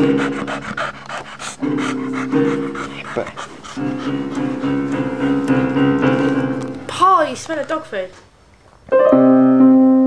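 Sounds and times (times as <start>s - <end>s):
dog panting: 0.0s - 6.4s
electronic keyboard chords: 3.8s - 6.9s, 8.9s - 10.0s.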